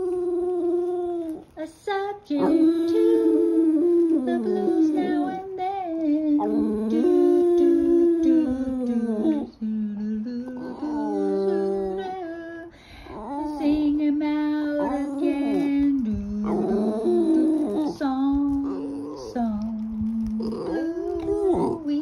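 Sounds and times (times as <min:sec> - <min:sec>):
woman singing: 0:00.0 - 0:22.0
dog howling: 0:02.4 - 0:05.6, 0:10.5 - 0:12.2, 0:13.1 - 0:22.0.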